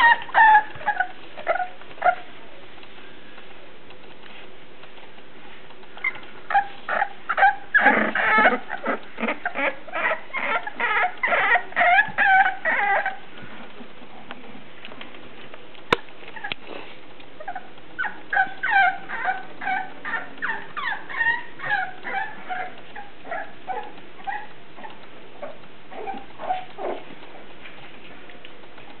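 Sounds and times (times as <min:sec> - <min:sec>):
puppies whining: 0:00.0 - 0:02.7, 0:06.0 - 0:13.6, 0:15.9 - 0:27.5
sharp click: 0:02.8 - 0:06.4.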